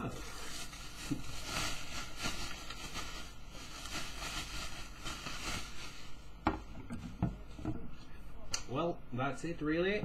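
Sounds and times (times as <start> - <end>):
bubble wrap crinkling: 0.0 - 6.5.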